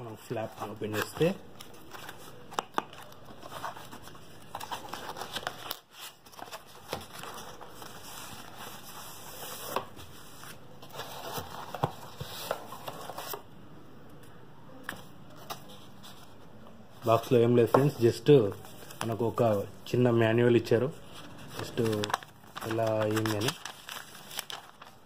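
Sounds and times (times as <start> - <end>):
plastic wrapping crinkling: 21.2 - 25.0.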